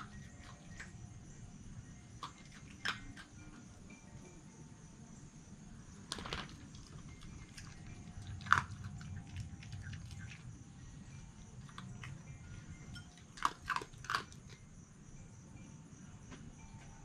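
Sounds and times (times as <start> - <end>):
fox chewing and crunching: 0.0 - 1.2, 1.8 - 4.1, 6.0 - 14.7.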